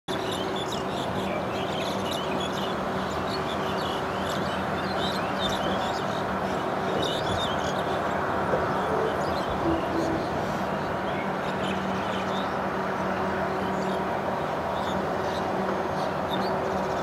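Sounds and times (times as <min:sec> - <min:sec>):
constant low hum: 0:00.5 - 0:17.0
birds chirping: 0:00.6 - 0:12.6.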